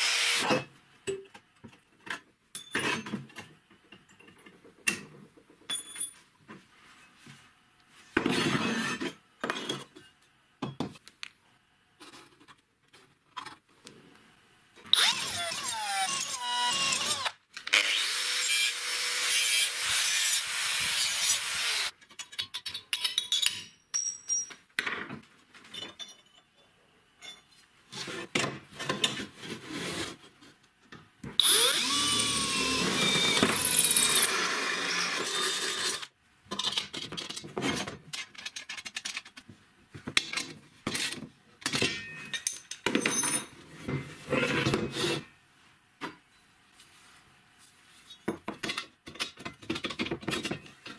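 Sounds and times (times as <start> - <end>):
electric drill boring through steel: 0.0 - 0.5, 15.0 - 21.9, 31.4 - 36.1.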